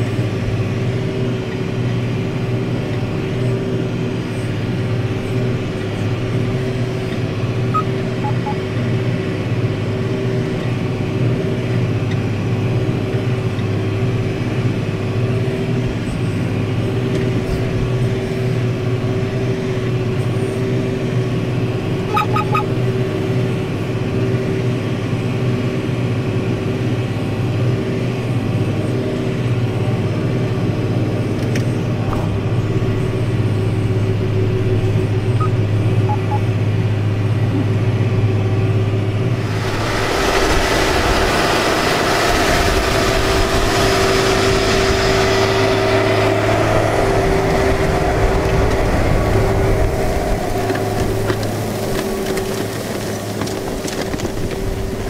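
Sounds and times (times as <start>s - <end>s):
tractor engine running under load: 0.0s - 55.0s
short high beeps: 7.8s - 8.6s.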